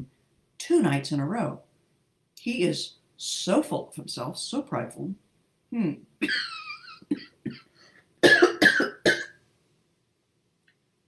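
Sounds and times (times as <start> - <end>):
woman coughing: 6.2 - 6.5, 8.2 - 9.4.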